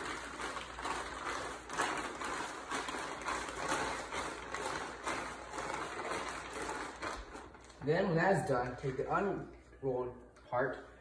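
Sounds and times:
plastic tarp crinkling: 0.0 - 9.2.

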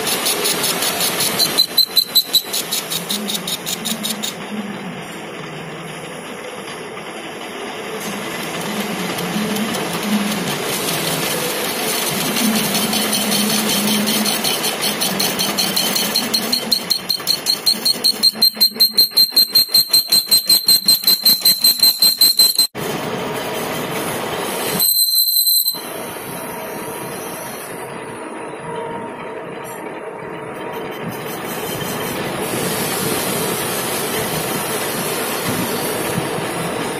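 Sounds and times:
lathe cutting metal: 0.0 - 22.6
high pulsing squeal: 0.0 - 22.7, 23.6 - 36.8.

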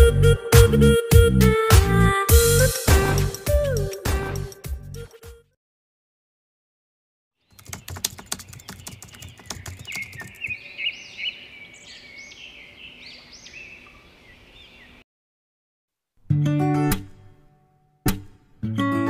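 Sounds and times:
small birds chirping: 7.4 - 15.0
rapid keyboard-like clicking: 7.5 - 10.6.

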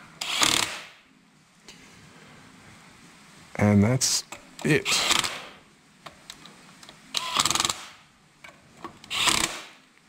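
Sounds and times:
cordless drill whirring: 0.2 - 0.8, 7.2 - 7.8, 9.1 - 9.6.

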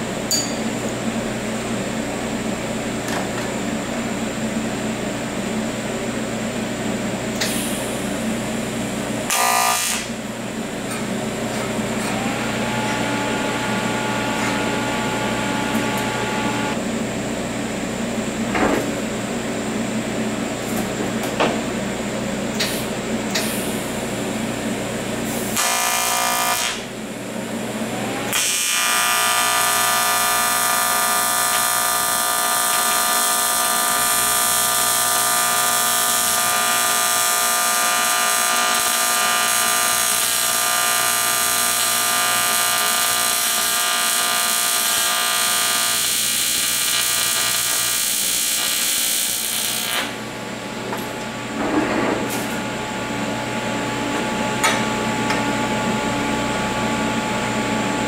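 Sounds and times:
welding arc buzzing: 7.4 - 16.8, 25.2 - 27.0, 28.3 - 51.6.

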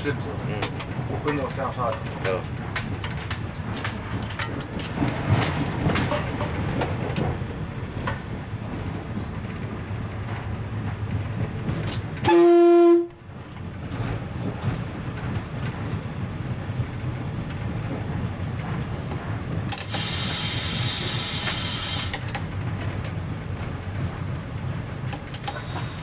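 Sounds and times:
railbus engine and wheels rumbling: 0.0 - 26.0
train horn blast: 12.2 - 13.2.

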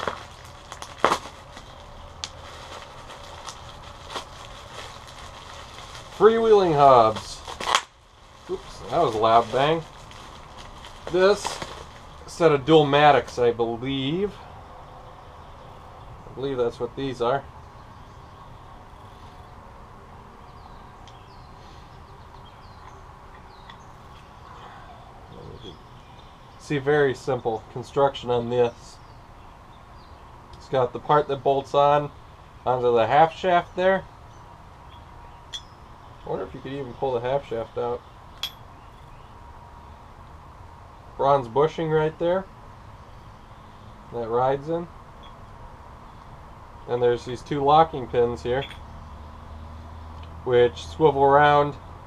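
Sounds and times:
bubble wrap crinkling and crackling: 0.0 - 13.4
low background rumble: 0.0 - 50.6
small birds chirping: 0.0 - 52.0.

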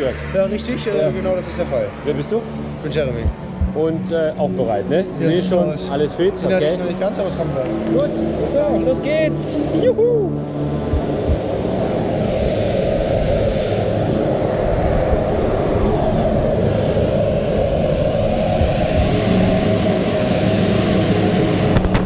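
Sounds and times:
propeller plane engine drone: 0.0 - 22.0.

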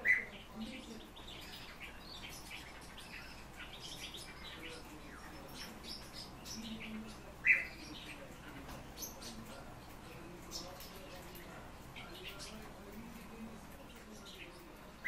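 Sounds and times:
sharp bird calls: 0.0 - 8.2
cage birds chirping: 0.0 - 15.0.

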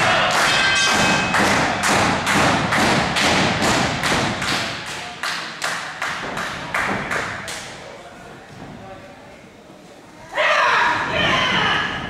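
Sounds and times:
rhythmic sharp thumps: 0.0 - 7.6.

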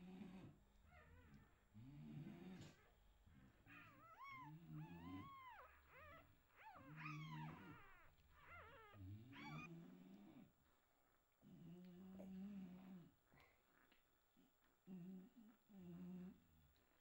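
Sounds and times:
puppies grunting: 2.3 - 9.7
puppies crying and squeaking: 3.7 - 9.7.

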